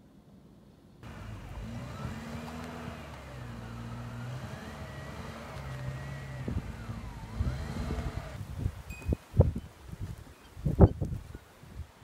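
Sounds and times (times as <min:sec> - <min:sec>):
car engine running: 0:01.0 - 0:08.4
wavering whine: 0:01.0 - 0:08.4.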